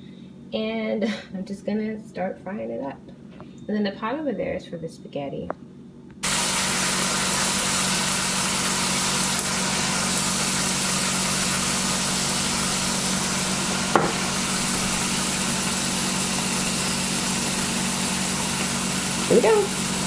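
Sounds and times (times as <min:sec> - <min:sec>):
chicken sizzling in oil: 0:06.2 - 0:20.0
short knock: 0:14.0 - 0:14.2.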